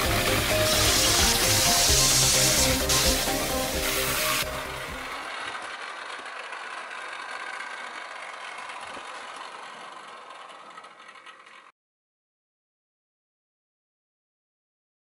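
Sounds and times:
model train motor whirring: 0.0 - 11.7.

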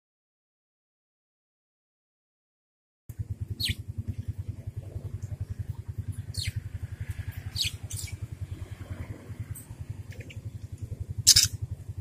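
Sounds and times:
engine throbbing: 3.1 - 12.0
budgerigars chirping: 3.6 - 3.8, 6.3 - 6.6, 7.5 - 8.2, 11.2 - 11.6.

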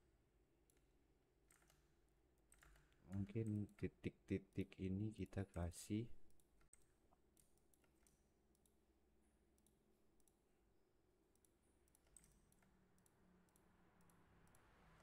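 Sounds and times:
computer mouse clicks: 1.5 - 3.9, 6.2 - 8.8, 9.6 - 10.4, 11.3 - 14.7.

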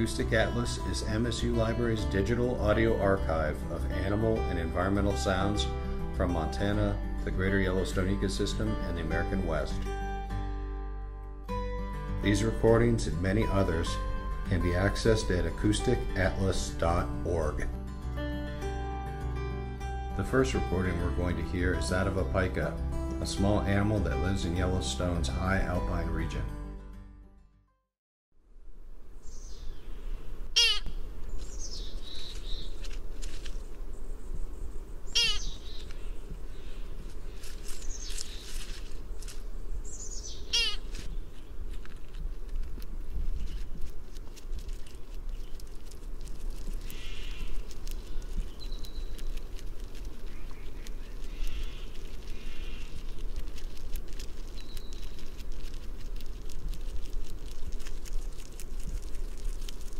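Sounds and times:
pika sharp calls: 29.2 - 32.9, 33.6 - 41.6, 46.8 - 49.6, 50.2 - 53.7, 54.4 - 55.5
pika bleat-like calls: 30.5 - 31.0, 35.1 - 35.6, 40.3 - 41.0, 46.8 - 47.6, 51.2 - 53.0
low background rumble: 30.5 - 59.9
thin high squeak: 30.6 - 30.9, 40.5 - 41.1.

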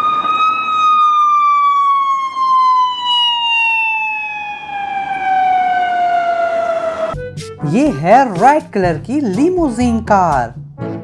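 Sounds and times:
electronic siren wail: 0.0 - 7.2.

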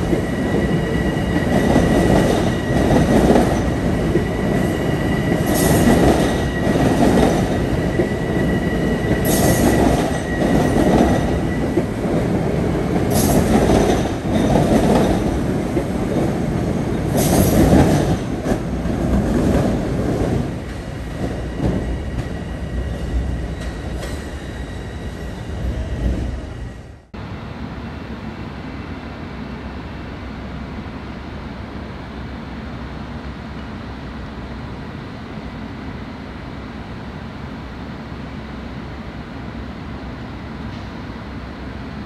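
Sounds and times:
distant train rumble on viaduct: 0.0 - 42.0
train pulling out rumbling: 0.0 - 42.0.

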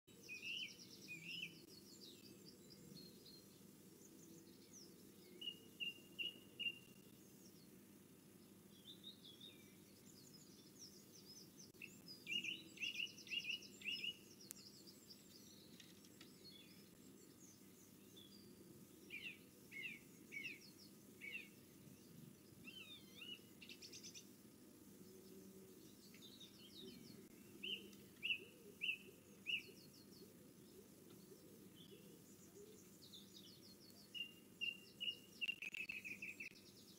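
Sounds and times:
faint background noise: 0.1 - 36.9
songbirds singing: 0.1 - 36.9
rapid bird trills: 34.2 - 36.6.

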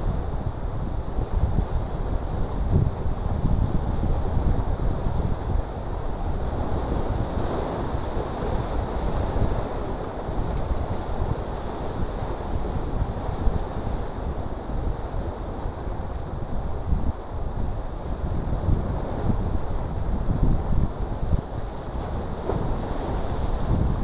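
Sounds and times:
wind buffeting microphone: 0.0 - 24.0
waves breaking on rocks: 21.7 - 24.0.

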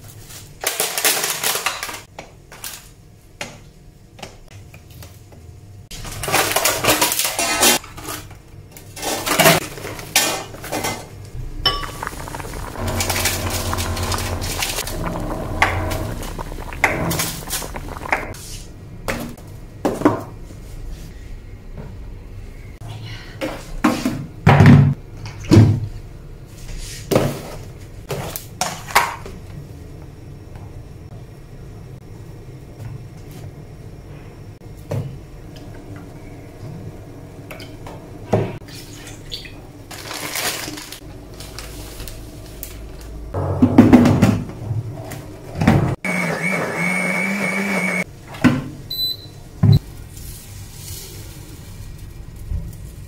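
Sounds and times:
kitchen items knocking and clunking: 9.0 - 18.4, 43.4 - 46.0
blender running: 11.7 - 18.3, 46.0 - 48.0.

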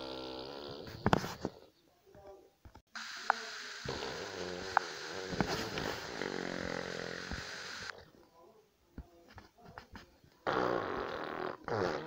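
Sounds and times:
raspy fart noise: 0.0 - 1.6, 3.8 - 7.5, 10.4 - 12.0.

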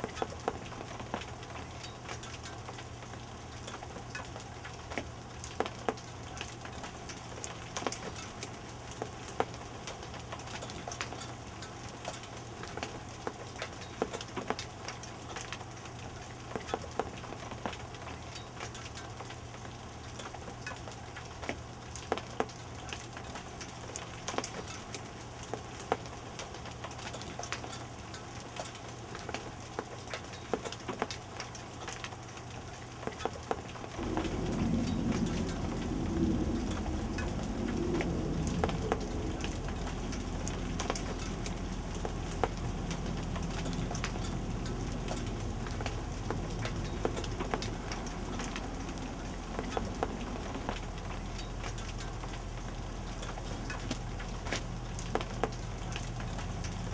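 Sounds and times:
hailstones ticking: 0.0 - 56.9
light rain pattering: 0.0 - 56.9
low steady hum: 33.8 - 56.9.

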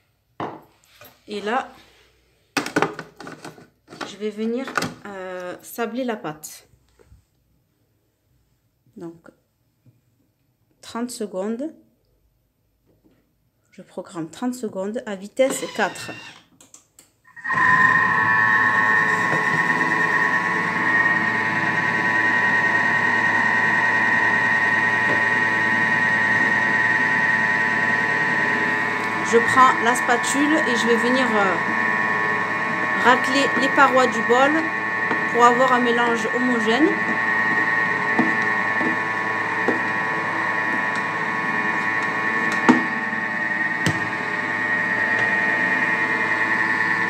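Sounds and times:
food mixer motor whining: 15.5 - 16.4, 17.4 - 47.0.

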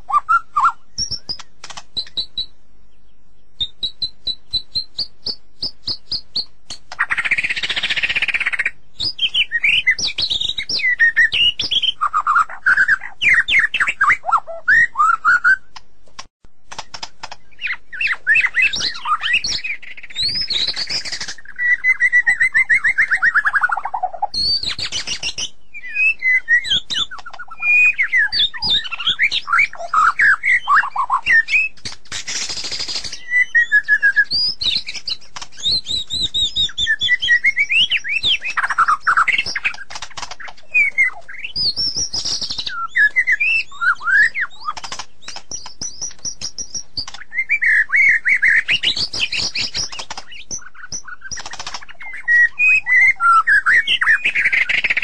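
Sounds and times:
bird singing whistled phrases: 0.0 - 2.5, 3.4 - 15.8, 17.4 - 31.8, 32.5 - 55.0
bird sharp clicks: 0.6 - 2.5, 3.6 - 12.0, 15.7 - 21.6, 24.3 - 29.4, 37.4 - 43.6, 44.2 - 53.0.

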